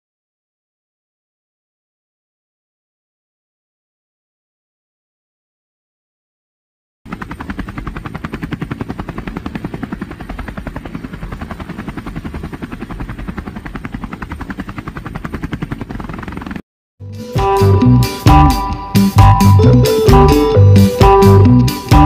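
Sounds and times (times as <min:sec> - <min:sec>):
helicopter rotor blades beating: 0:07.1 - 0:16.6, 0:17.2 - 0:22.0.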